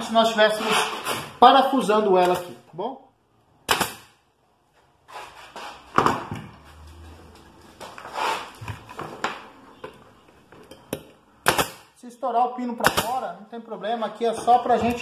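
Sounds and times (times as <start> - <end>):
pin nailer firing: 3.7 - 4.2, 11.4 - 11.9, 12.8 - 13.2.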